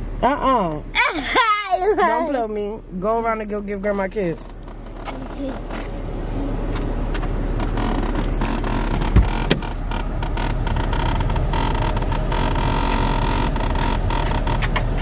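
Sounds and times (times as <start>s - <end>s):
parked car engine humming: 0.0s - 15.0s
steady whine: 0.0s - 15.0s
sharp thump: 9.1s - 9.7s.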